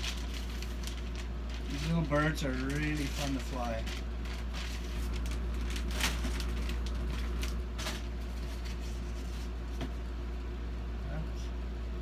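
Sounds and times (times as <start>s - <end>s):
plastic bag crinkling: 0.0s - 9.4s
steady low hum: 0.0s - 12.0s.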